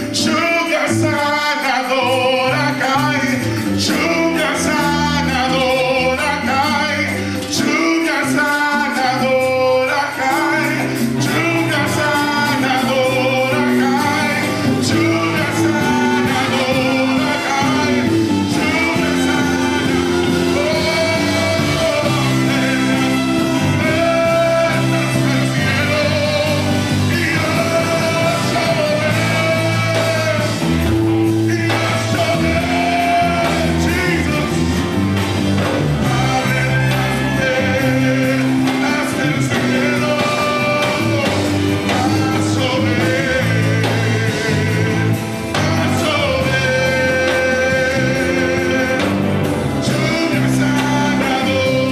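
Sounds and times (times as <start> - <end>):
band with keyboards playing: 0.0 - 51.9
man singing into a microphone: 0.0 - 51.9.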